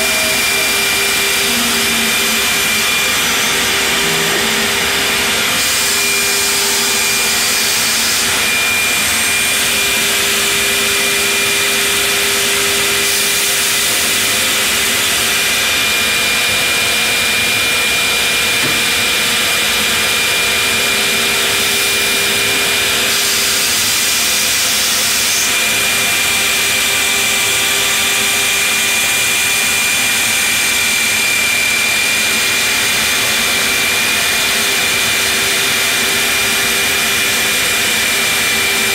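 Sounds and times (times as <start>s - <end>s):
router cutting wood: 0.0s - 38.9s
router spindle whining: 0.0s - 38.9s.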